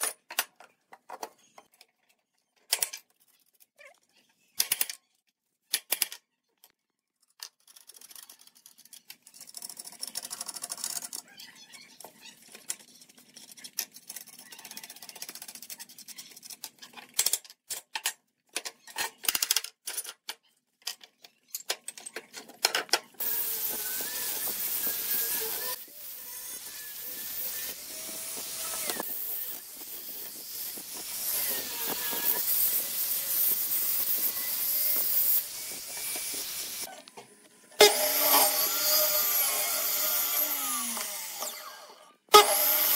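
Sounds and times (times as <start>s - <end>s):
metal clamps clicking and knocking: 0.0s - 3.1s, 12.5s - 23.2s
angle grinder sanding a board: 23.2s - 36.9s.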